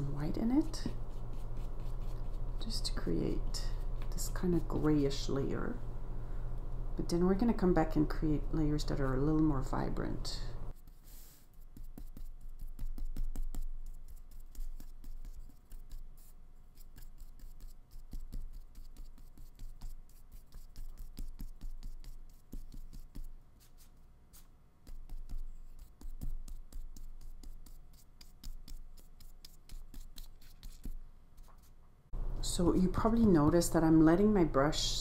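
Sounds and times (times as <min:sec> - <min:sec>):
dry paintbrush scrubbing on paper: 0:00.1 - 0:04.9, 0:10.7 - 0:31.7.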